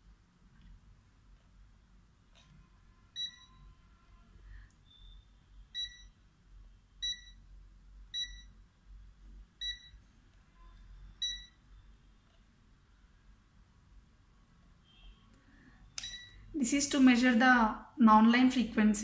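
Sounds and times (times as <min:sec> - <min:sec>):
multimeter short high beeps: 0:03.2 - 0:03.7, 0:04.8 - 0:06.2, 0:07.0 - 0:07.4, 0:08.2 - 0:08.6, 0:09.6 - 0:10.0, 0:11.2 - 0:11.6, 0:16.0 - 0:16.5.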